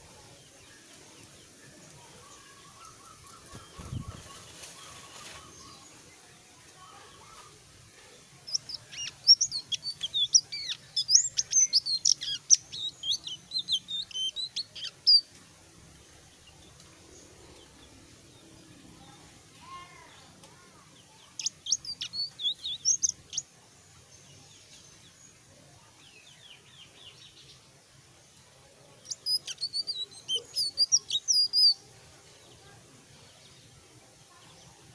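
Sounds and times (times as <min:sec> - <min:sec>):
songbird singing high notes: 0:08.5 - 0:15.2, 0:21.4 - 0:23.4, 0:29.0 - 0:31.8.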